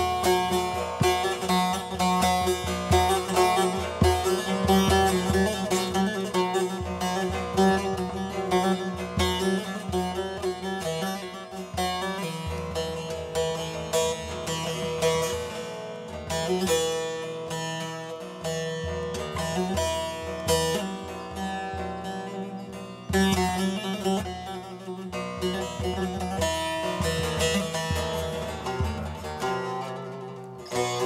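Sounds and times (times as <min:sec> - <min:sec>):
long-necked lute plucked and strummed: 0:00.0 - 0:31.0.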